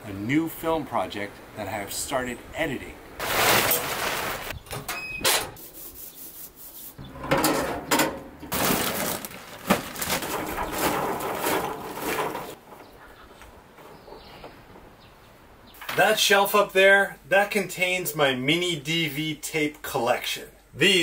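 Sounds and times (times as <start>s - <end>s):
charcoal rattling from a bag: 3.2s - 4.5s, 8.5s - 12.6s
tarp rustling: 3.2s - 4.6s, 8.4s - 12.7s
metal grate clanking: 7.0s - 12.6s.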